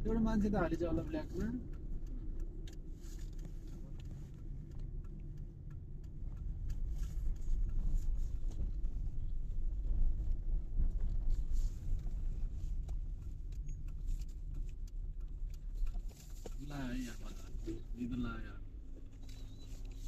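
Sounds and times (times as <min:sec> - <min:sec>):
car road and engine rumble: 0:00.0 - 0:20.0.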